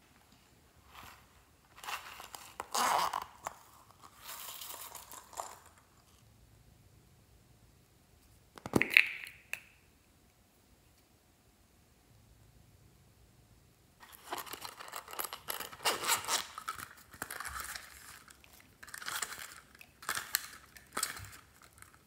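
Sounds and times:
plastic containers crinkling: 14.0s - 22.0s.

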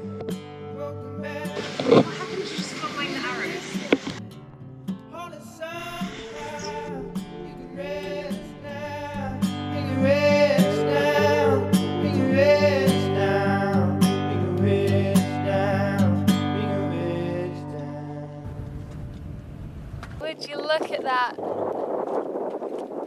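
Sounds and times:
person singing: 0.0s - 4.1s, 5.1s - 18.7s
acoustic guitar: 0.0s - 20.2s.

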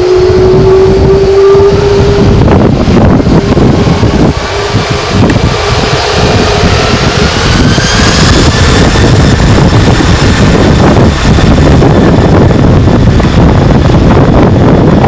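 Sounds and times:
jet engine roar: 0.0s - 15.0s
rising jet whine: 0.0s - 15.0s.

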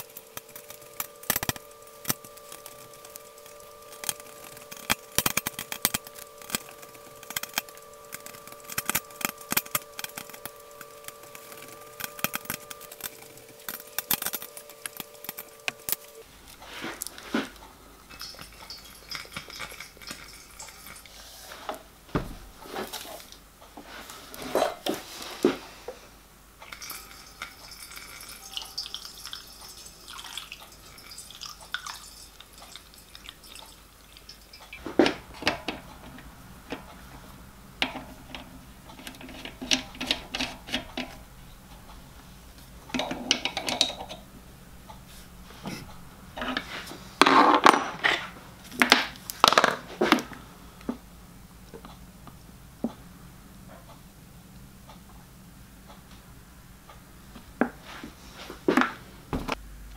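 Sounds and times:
spanner working on brass fitting: 0.0s - 16.3s, 18.0s - 21.2s, 26.6s - 42.0s, 42.8s - 44.3s
water trickling through a funnel: 0.0s - 16.3s, 18.0s - 21.3s, 26.6s - 36.8s.

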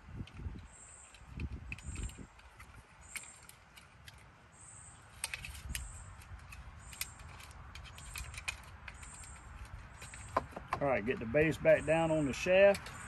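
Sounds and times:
plastic clicks and rattles: 5.1s - 10.8s.

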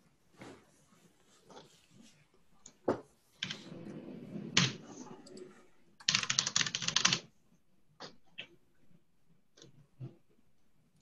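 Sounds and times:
keyboard typing: 4.6s - 7.3s.

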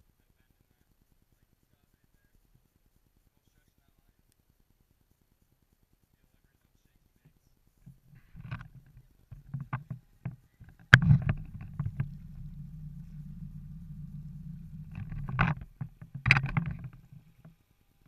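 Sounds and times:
boat motor droning: 10.9s - 17.2s
sharp knock: 11.0s - 16.9s.

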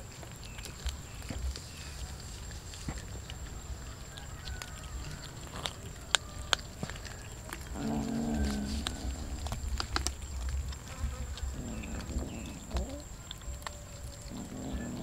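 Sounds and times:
cats chewing raw fish: 0.0s - 15.0s
cat growling: 4.8s - 10.2s, 11.3s - 15.0s.

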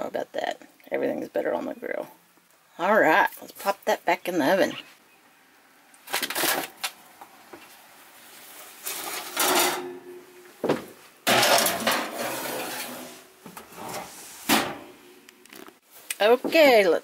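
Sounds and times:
pan scraping on metal: 8.6s - 10.2s, 11.2s - 14.9s
metal knocks and clatters: 8.9s - 13.7s.

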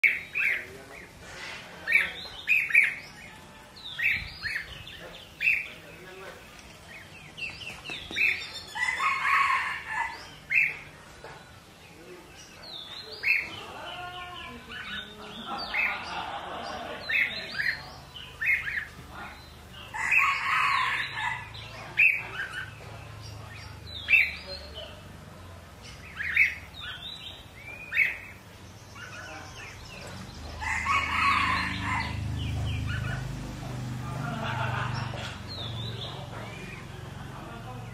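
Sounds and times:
birds chirping and calling: 0.0s - 37.9s
bird calling: 25.9s - 33.4s.

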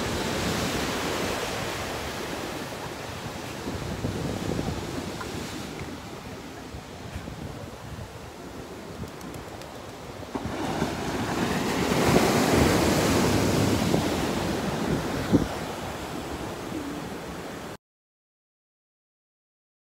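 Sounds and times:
wind on microphone: 0.0s - 17.5s
ocean surf breaking: 0.0s - 17.8s.

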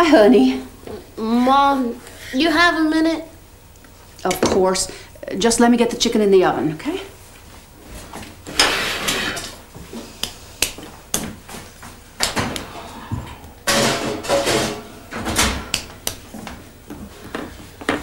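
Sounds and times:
pans and utensils knocking: 13.6s - 15.8s.

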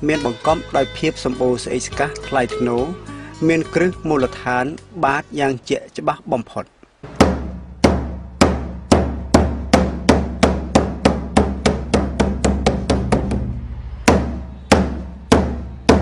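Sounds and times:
large drum struck with beater: 7.1s - 16.0s.

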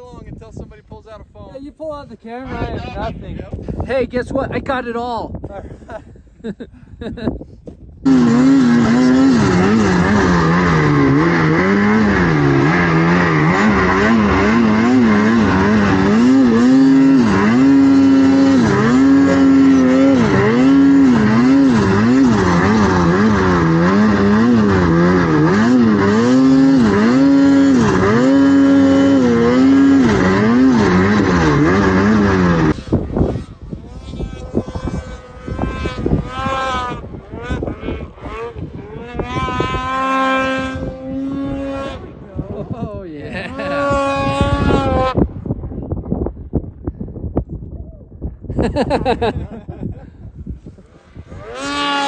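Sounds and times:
snowmobile engine revving: 8.0s - 45.6s, 48.6s - 49.9s, 50.5s - 52.0s.

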